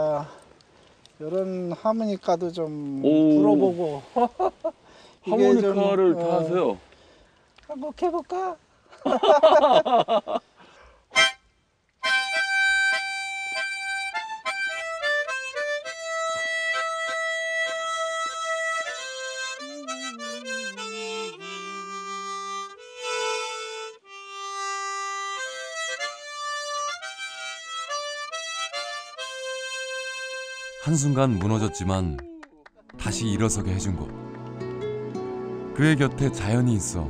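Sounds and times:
harmonica playing slow tune: 11.1 - 31.9, 33.2 - 37.0.

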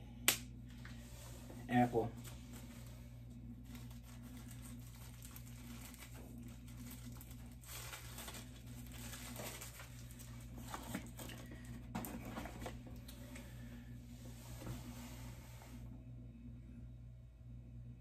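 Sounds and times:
packaging rustling: 3.6 - 13.4.

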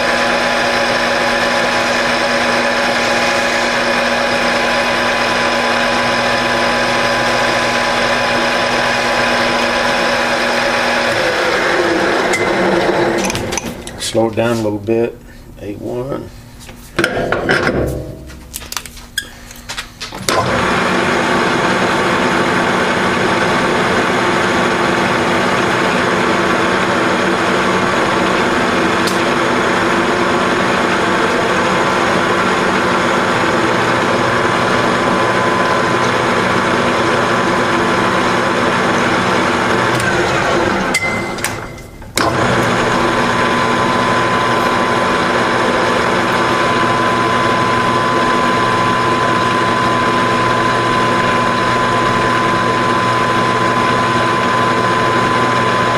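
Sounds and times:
lathe running with gear whine: 0.0 - 14.3, 20.3 - 55.9
lathe levers clanking: 12.3 - 14.0, 17.0 - 19.3, 39.8 - 42.9.

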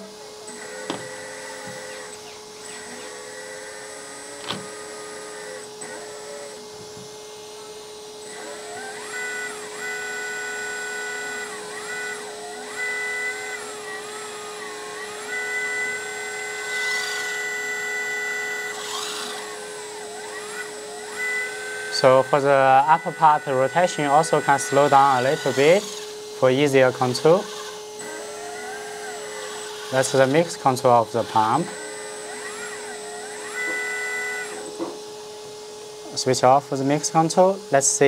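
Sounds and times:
hydraulic pump whining: 0.0 - 38.0.

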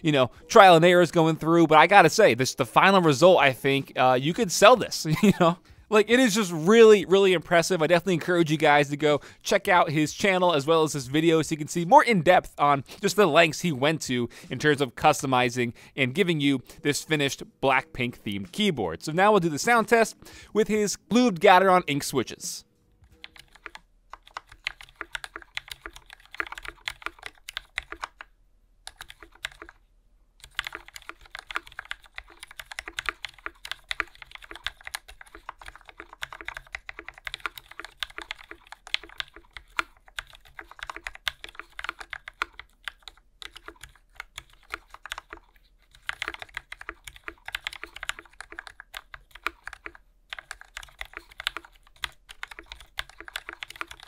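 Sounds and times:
fast typing on mechanical keyboard: 23.2 - 29.8, 30.4 - 54.0.

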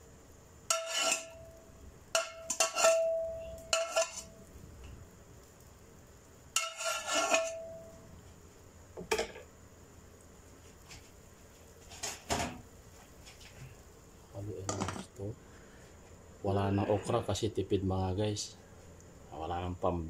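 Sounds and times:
metal spoon scraping a pot: 0.7 - 1.4, 2.2 - 4.3, 6.6 - 7.8.

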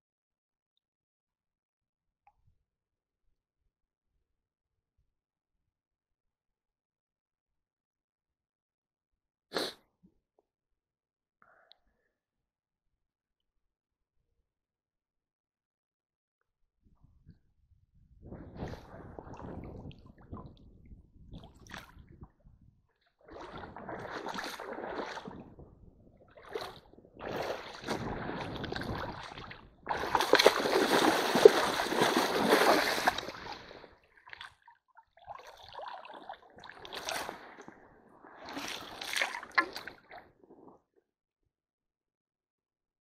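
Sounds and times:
stream water splashing: 23.3 - 25.4, 26.4 - 34.6, 35.2 - 37.7, 38.4 - 40.2.

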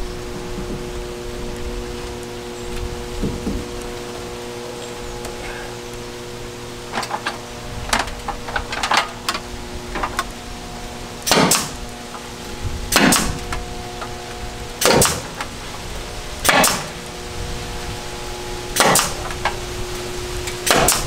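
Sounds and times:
pneumatic staple gun firing: 11.3 - 11.8, 12.9 - 13.4, 14.8 - 15.2, 16.4 - 16.9, 18.8 - 19.2, 20.6 - 21.0.

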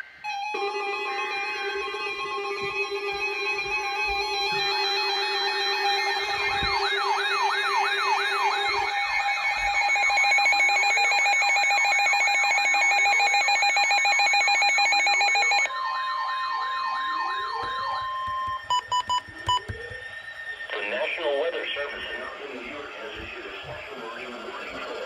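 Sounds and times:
steady held tone: 0.0 - 11.6
sirens wailing: 0.0 - 25.0
steady beeping tones: 0.0 - 25.0.

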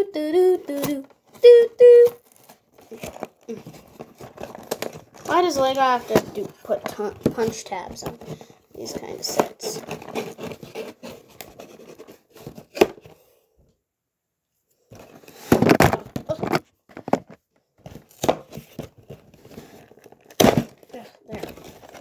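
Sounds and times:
cardboard box tearing: 2.2 - 8.2, 8.8 - 13.0, 18.0 - 22.0.

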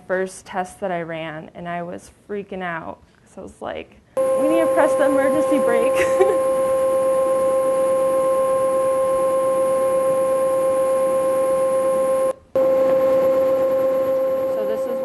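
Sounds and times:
electronic alarm tone: 4.2 - 15.0.

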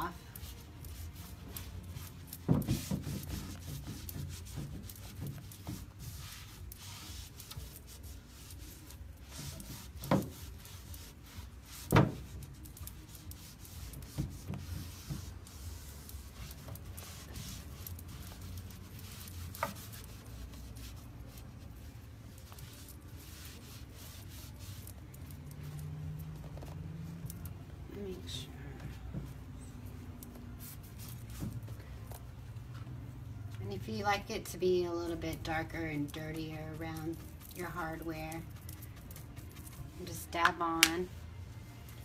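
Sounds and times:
cloth rubbing on wood: 0.0 - 27.6.

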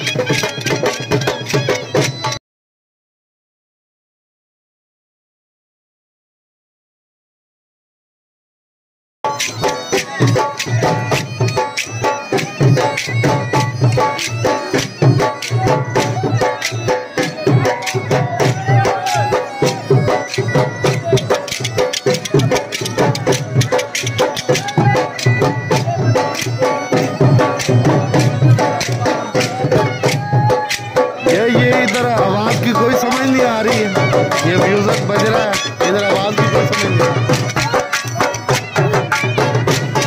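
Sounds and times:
bagpipe drone and melody: 9.3 - 40.0
fast loud drumbeat: 9.3 - 40.0.

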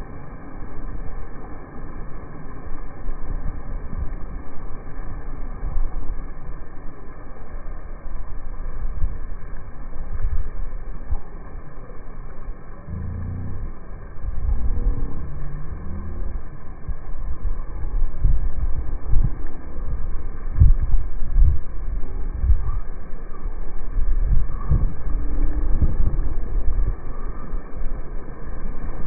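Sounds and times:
wind buffeting microphone: 2.6 - 29.0
wavering pitched sound: 12.8 - 17.0.

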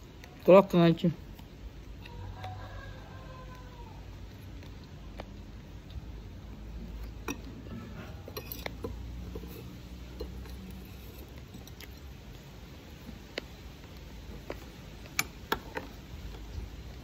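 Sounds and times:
metal spoon clinking on glass: 8.2 - 11.3.

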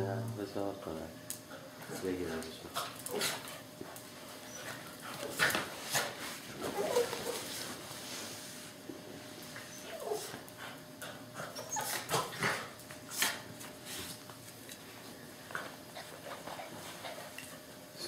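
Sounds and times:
scuffling on tile floor: 3.3 - 10.4
dogs whimpering: 6.7 - 7.4, 9.6 - 10.4, 11.3 - 12.3.

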